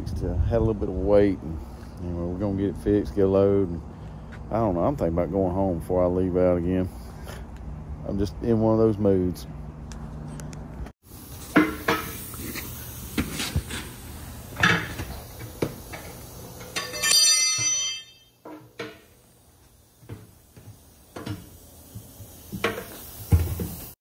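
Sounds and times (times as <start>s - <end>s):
metal clanks and knocks: 14.6s - 19.2s.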